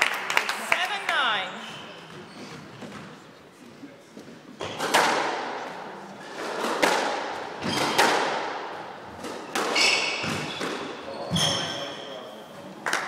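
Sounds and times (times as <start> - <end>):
squash ball hits: 4.6 - 5.6, 6.4 - 11.6.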